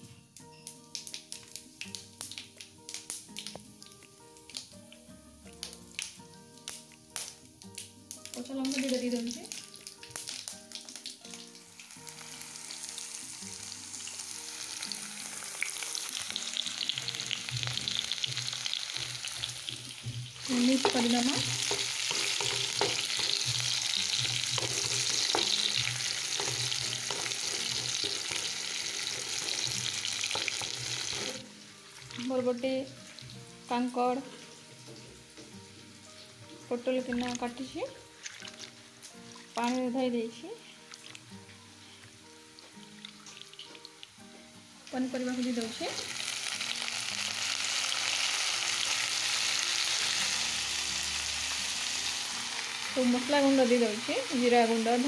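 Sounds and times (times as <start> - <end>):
onions sizzling in hot oil: 0.0 - 55.0
wooden spatula knocking against pan: 20.8 - 25.7.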